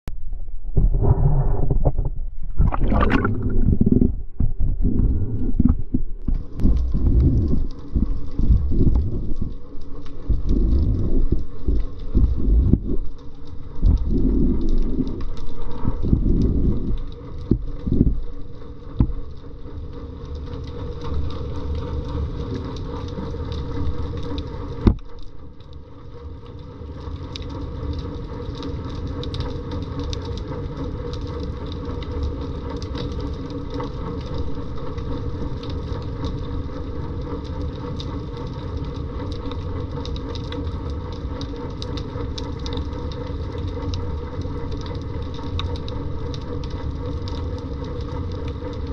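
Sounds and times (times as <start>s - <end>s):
underwater low rumble: 0.1s - 48.9s
underwater thumps: 0.7s - 9.5s, 10.3s - 13.1s
crackling clicks: 0.8s - 48.9s.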